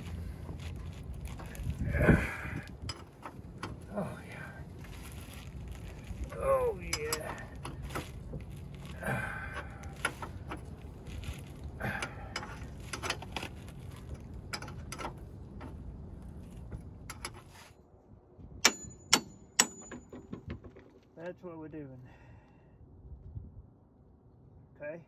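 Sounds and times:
metal tools clinking and rattling: 5.8 - 8.2, 11.9 - 15.7, 18.6 - 20.9.

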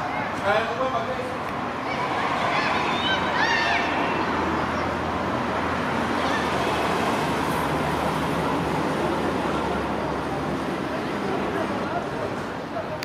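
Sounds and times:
distant road traffic: 0.0 - 13.0
children shouting: 1.7 - 7.7.

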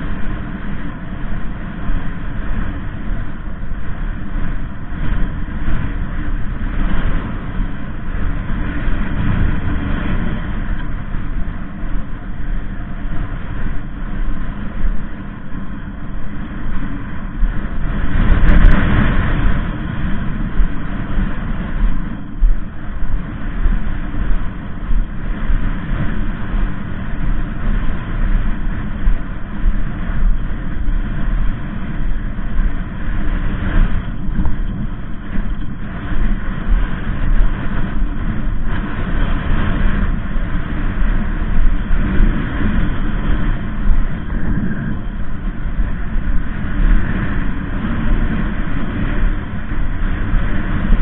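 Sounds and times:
wind blowing on microphone: 0.0 - 51.0.

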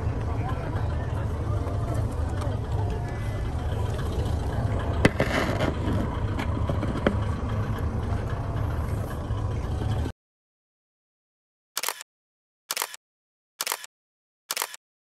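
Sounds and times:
diesel railcar engine drone: 0.0 - 10.1
sharp clicks: 11.8 - 12.0, 12.7 - 13.0, 13.6 - 13.9, 14.5 - 14.8.

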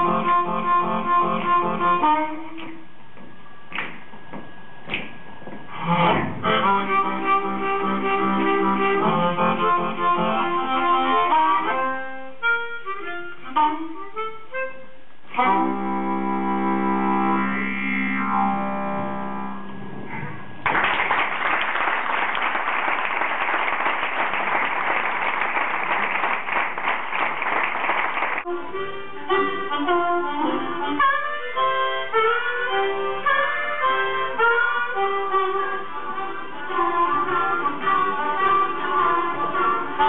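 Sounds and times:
blues harmonica: 0.0 - 2.9, 5.7 - 19.8, 28.5 - 40.0
audience applause: 20.6 - 28.5.

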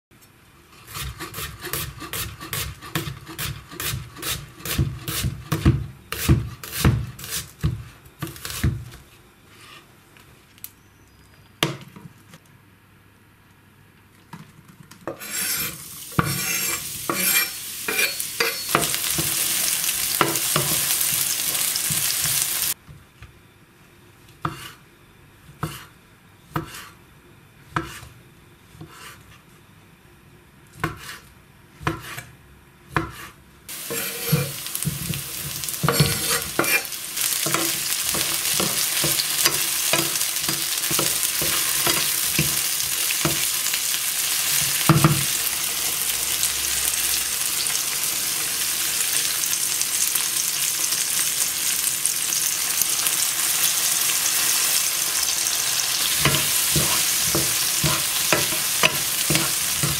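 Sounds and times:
knife slicing sausage on board: 0.8 - 8.9, 25.5 - 25.9, 26.5 - 27.0, 27.7 - 28.2, 28.8 - 29.3, 30.8 - 32.3, 32.9 - 42.6, 56.1 - 59.9
knife chopping on cutting board: 0.9 - 8.9, 15.1 - 21.2, 25.6 - 25.9, 26.5 - 27.0, 27.7 - 28.1, 28.8 - 29.2, 30.8 - 32.3, 32.9 - 42.6, 56.1 - 59.9
onions sizzling in frying pan: 1.0 - 7.8, 15.2 - 22.8, 33.7 - 59.9.

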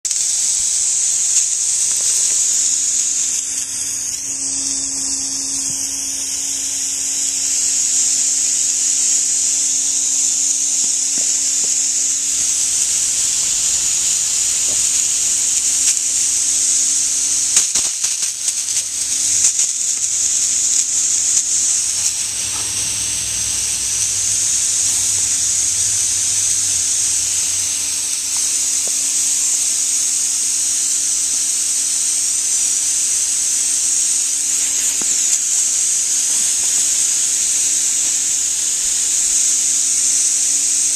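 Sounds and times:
hose nozzle spraying water: 0.1 - 39.7
low steady hum: 18.9 - 28.6.

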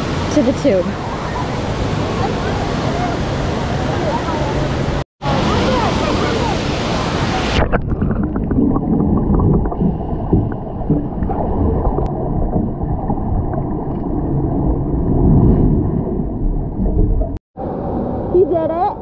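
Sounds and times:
underwater churning water: 4.8 - 17.4
bubbles ticking: 7.6 - 15.3.

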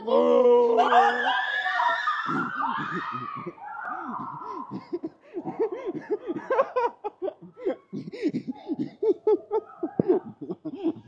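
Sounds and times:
hearty laughter: 2.3 - 11.0.

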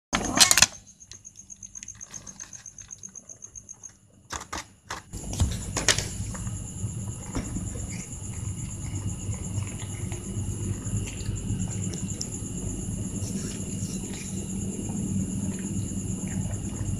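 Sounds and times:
crickets chirping: 0.2 - 16.9
cats chewing and crunching: 5.2 - 16.9.

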